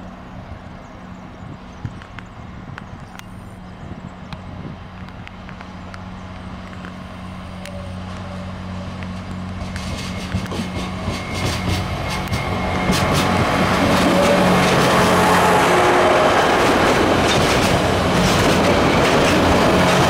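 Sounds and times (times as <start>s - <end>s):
diesel train engine drone: 0.0s - 20.0s
train wheel clicks: 9.0s - 15.0s, 16.6s - 20.0s.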